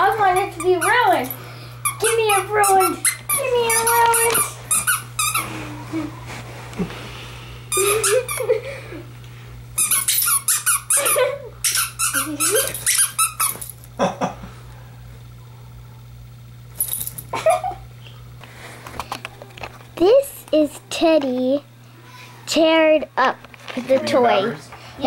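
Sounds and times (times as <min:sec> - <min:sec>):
plush toy squeaker squeaking: 0:01.9 - 0:05.4, 0:09.8 - 0:13.6.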